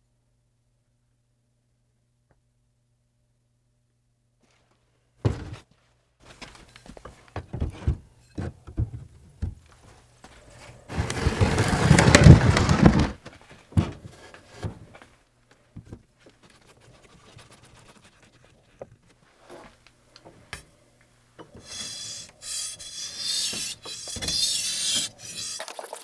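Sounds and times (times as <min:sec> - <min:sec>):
blade rasping on whetstone: 0:21.6 - 0:25.7.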